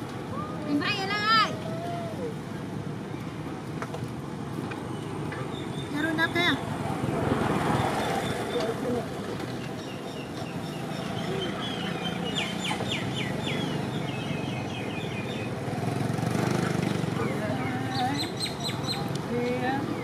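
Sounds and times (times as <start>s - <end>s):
vehicle engine rumble: 0.0s - 20.0s
bird chirping: 9.6s - 15.6s, 16.8s - 19.1s.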